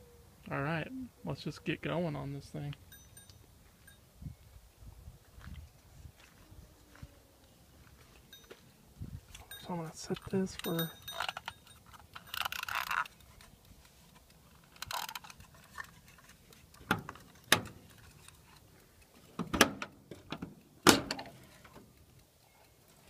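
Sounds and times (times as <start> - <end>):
handling rustle: 7.8 - 19.5.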